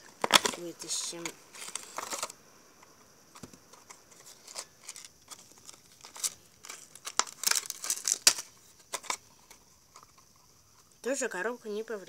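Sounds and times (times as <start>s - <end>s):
plastic packaging crinkling: 0.0s - 2.4s, 3.4s - 10.2s.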